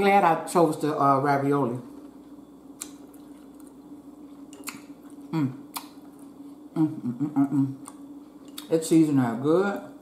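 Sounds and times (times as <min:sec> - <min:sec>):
steady low hum: 0:00.0 - 0:10.0
chewing noises: 0:02.8 - 0:06.6
person humming: 0:05.3 - 0:05.6, 0:06.8 - 0:07.9.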